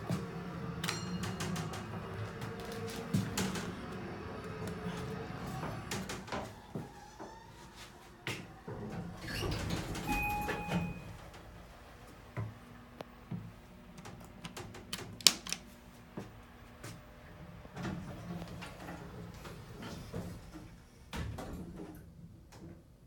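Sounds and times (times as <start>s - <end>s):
elevator doors opening: 0.0s - 12.6s, 17.1s - 22.7s
elevator hum: 0.0s - 22.4s
two-tone elevator chime: 0.3s - 3.1s, 10.1s - 11.2s.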